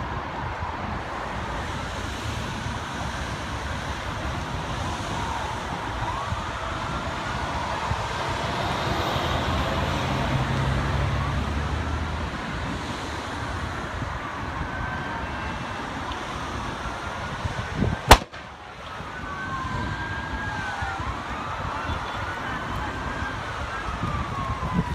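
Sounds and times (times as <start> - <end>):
distant sirens wailing: 0.0 - 24.9
fire rushing noise: 0.0 - 24.9
sharp loud bang: 18.1 - 18.6.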